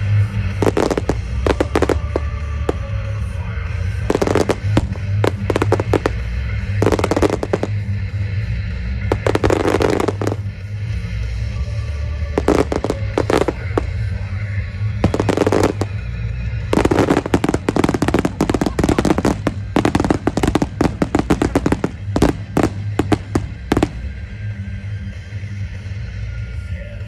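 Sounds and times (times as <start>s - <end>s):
firework shells bursting and crackling: 0.0s - 24.4s
loud music: 0.0s - 27.0s.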